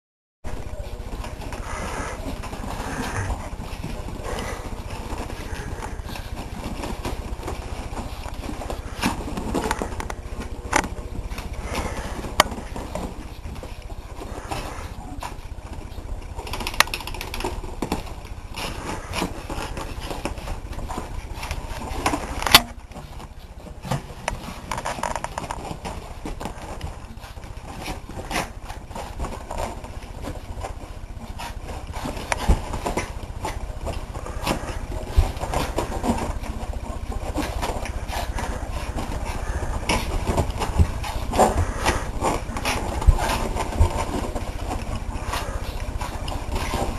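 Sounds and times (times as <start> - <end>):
steady low rumble: 0.5 - 16.8.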